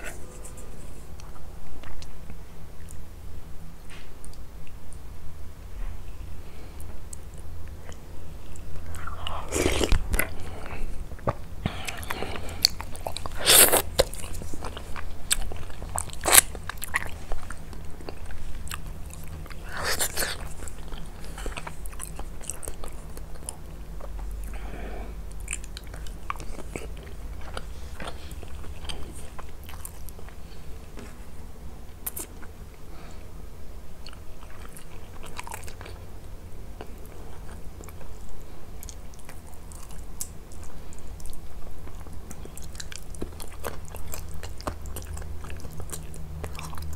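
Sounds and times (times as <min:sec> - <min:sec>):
person chewing food: 0:06.7 - 0:31.3, 0:32.0 - 0:33.2, 0:34.0 - 0:36.1, 0:36.8 - 0:46.9.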